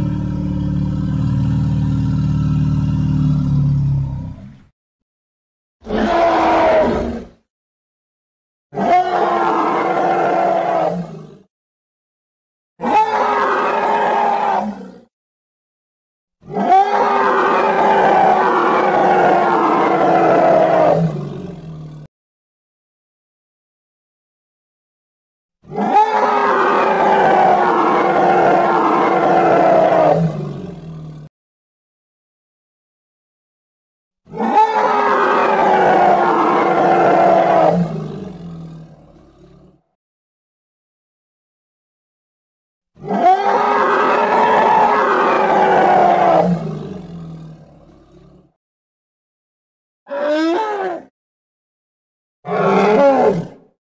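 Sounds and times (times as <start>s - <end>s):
dinosaur roar: 0.0s - 4.7s, 5.8s - 7.4s, 8.7s - 11.5s, 12.8s - 15.1s, 16.4s - 22.1s, 25.6s - 31.3s, 34.3s - 39.9s, 43.0s - 48.6s, 50.1s - 51.1s, 52.5s - 53.8s.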